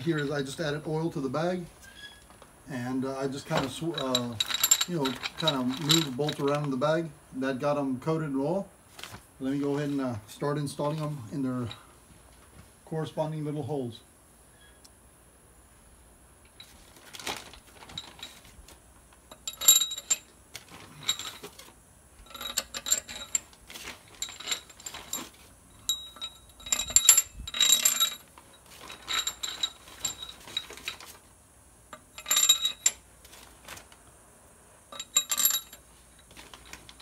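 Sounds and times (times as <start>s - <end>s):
metal bolts clinking: 3.4s - 6.8s, 19.3s - 31.2s, 31.9s - 33.8s, 34.9s - 37.0s.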